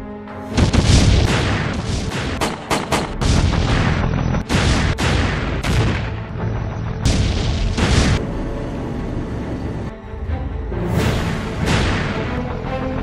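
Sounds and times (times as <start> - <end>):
gunfire: 0.5 - 6.3.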